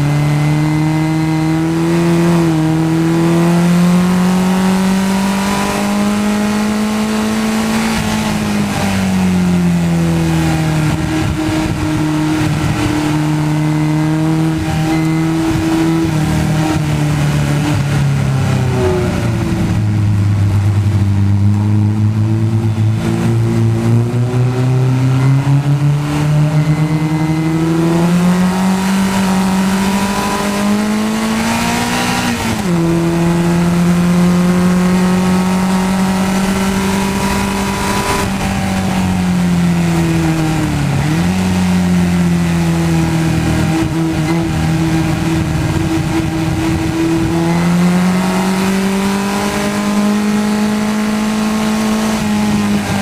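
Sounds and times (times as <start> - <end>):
race car engine revving: 0.0 - 53.0.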